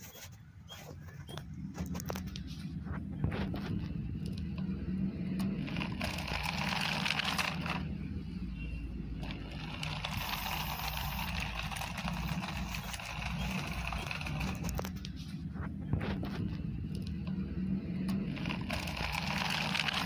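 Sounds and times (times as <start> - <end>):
plastic wheels scraping on concrete: 5.5 - 7.9, 9.2 - 15.3, 18.3 - 20.0
toy electric motor running: 5.5 - 8.0, 9.1 - 15.0, 18.2 - 20.0.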